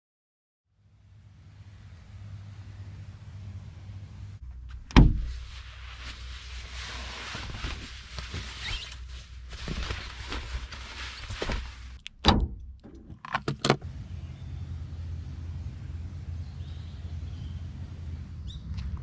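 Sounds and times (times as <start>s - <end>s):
fabric rustling: 4.6s - 12.0s.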